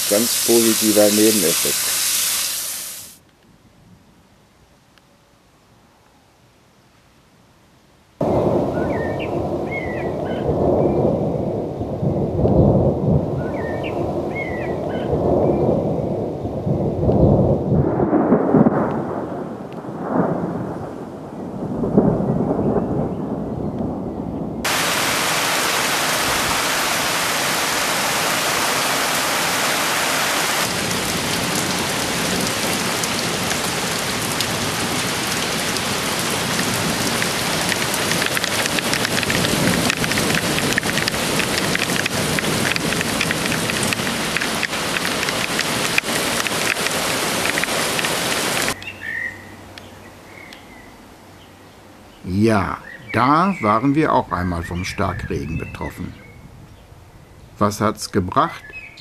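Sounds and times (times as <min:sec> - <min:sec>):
heavy rain downpour hiss: 0:00.0 - 0:24.0, 0:24.6 - 0:59.0
thunder rumbling: 0:08.2 - 0:29.7, 0:30.5 - 0:48.8.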